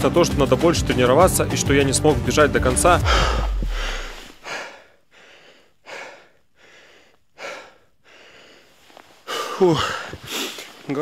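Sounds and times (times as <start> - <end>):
background music: 0.0 - 4.4
man panting: 3.0 - 10.7.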